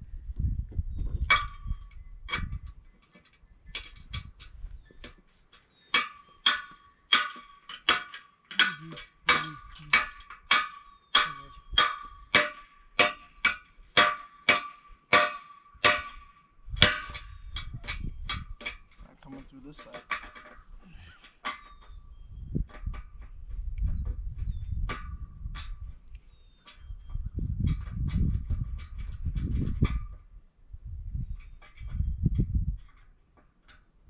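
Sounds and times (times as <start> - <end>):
hammer striking metal flagpole: 5.9 - 18.8.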